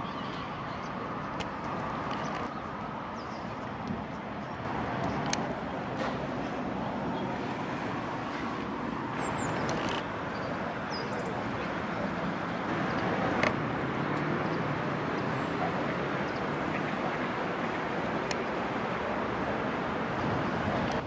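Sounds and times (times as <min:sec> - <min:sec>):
city traffic hum: 0:00.0 - 0:21.0.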